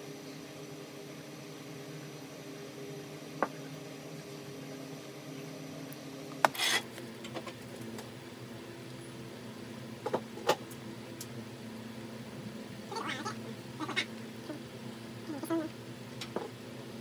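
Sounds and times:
electrical hum: 0.0s - 17.0s
sharp snap and sizzle: 10.5s - 11.4s.

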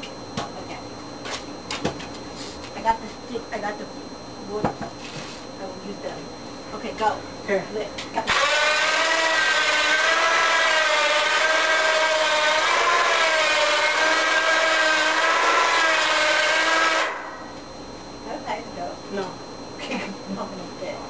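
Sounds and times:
winch motor whining: 8.3s - 17.7s.

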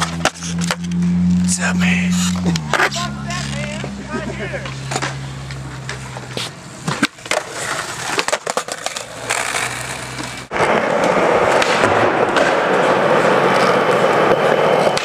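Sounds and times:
skateboard wheels rolling on concrete: 0.0s - 15.0s
skateboard pops and landings: 6.8s - 13.8s.

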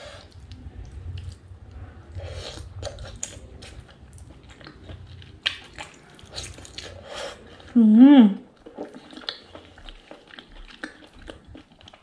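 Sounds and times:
biting and chewing: 2.3s - 7.7s, 8.5s - 12.0s.

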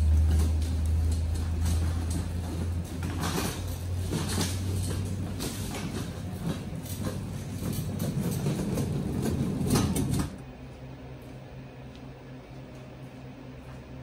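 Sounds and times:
cage cart casters rumbling: 0.0s - 10.6s
steady low hum: 0.0s - 14.0s.

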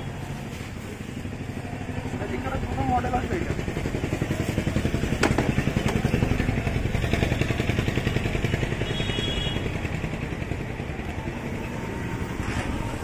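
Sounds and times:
small engine idling: 0.1s - 13.0s.

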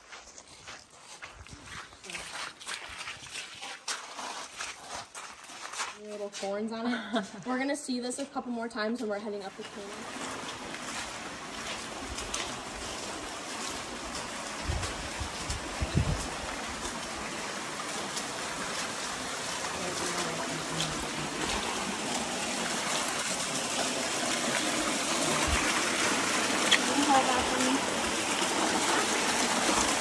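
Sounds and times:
creek trickling over rocks: 0.0s - 30.0s.

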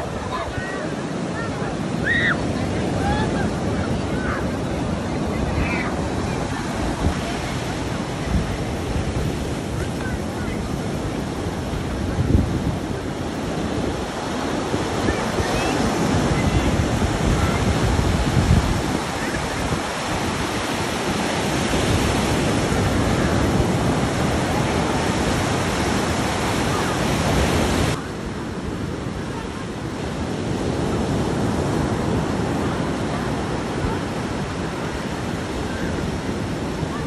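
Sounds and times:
surf breaking on sandy shore: 0.0s - 37.0s
wind rumbling on microphone: 0.0s - 37.0s.

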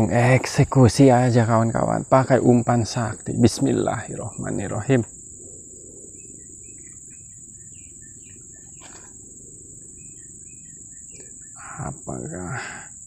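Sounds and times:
insects droning: 0.0s - 13.0s
short bird chirps: 6.2s - 9.2s.

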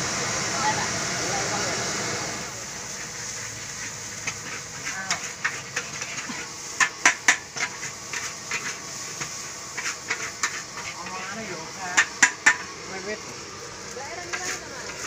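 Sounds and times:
sizzling hiss: 0.0s - 15.0s
metal spatula clanking on wok: 4.2s - 8.7s, 11.8s - 12.7s.

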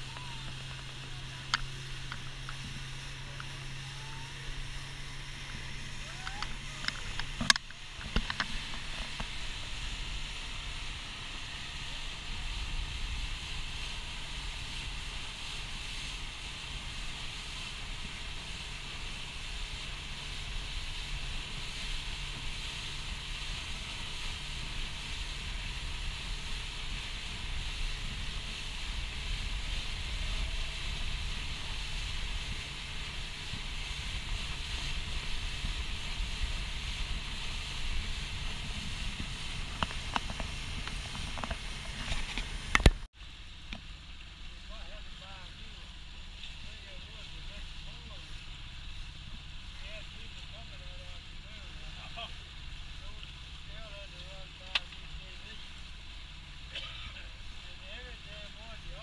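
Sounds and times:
motorboat engine drone: 0.0s - 59.0s
water splashing along hull: 0.0s - 59.0s
wind buffeting microphone: 23.2s - 43.1s.

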